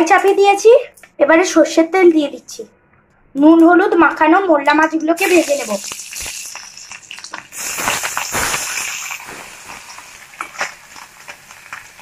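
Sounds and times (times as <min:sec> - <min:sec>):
fish sizzling in hot oil: 0:05.2 - 0:12.0.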